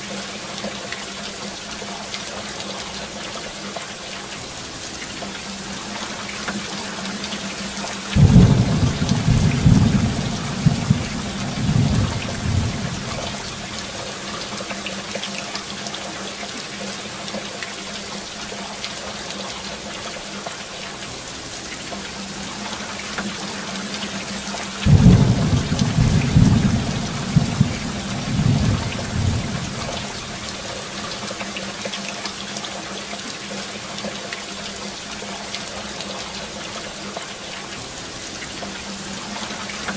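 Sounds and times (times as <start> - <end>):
heavy rain: 0.0 - 39.9
thunder rolling: 8.2 - 13.8, 24.9 - 30.6.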